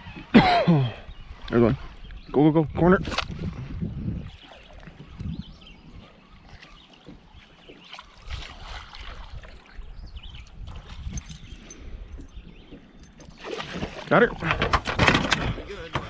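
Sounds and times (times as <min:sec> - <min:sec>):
wind buffeting microphone: 0:00.0 - 0:16.0
waves lapping against boat: 0:01.0 - 0:16.0
soft knocks against hull: 0:07.0 - 0:09.2.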